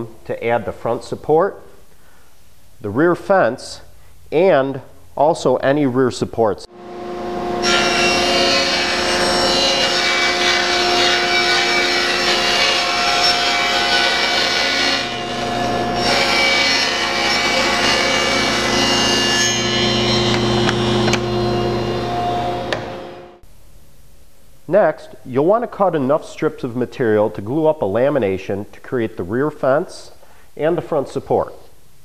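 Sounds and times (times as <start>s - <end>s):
table saw motor hum: 6.7s - 23.4s
saw blade cutting plywood: 7.3s - 23.2s.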